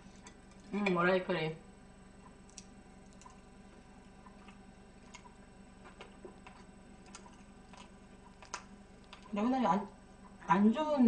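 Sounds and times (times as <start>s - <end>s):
steady low hum: 0.0s - 11.0s
person chewing food: 2.2s - 9.4s.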